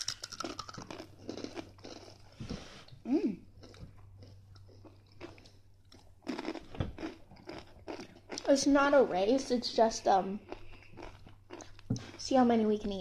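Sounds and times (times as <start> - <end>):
crisp chips crunching: 0.0 - 2.2, 3.6 - 8.5.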